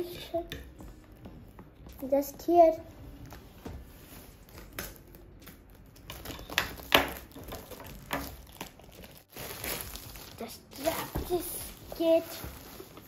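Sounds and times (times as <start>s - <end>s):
shrink wrap crinkling: 4.0s - 13.0s.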